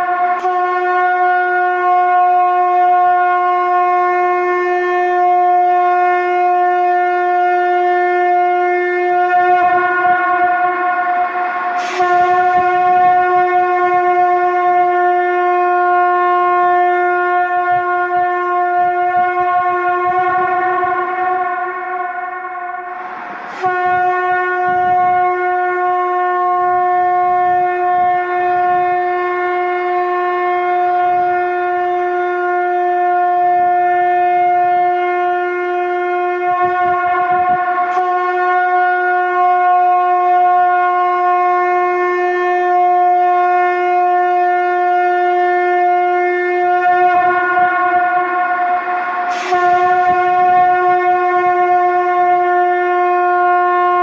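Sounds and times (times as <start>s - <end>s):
conch shell blasts: 0.0s - 54.0s.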